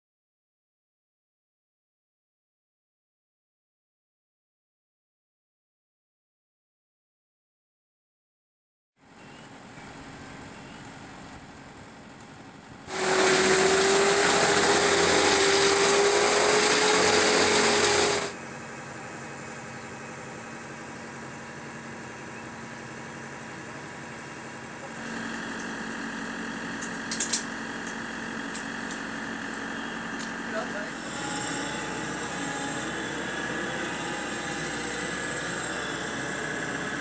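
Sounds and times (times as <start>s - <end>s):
engine drone: 9.0s - 37.0s
chainsaw running at high revs: 12.9s - 18.4s, 24.9s - 37.0s.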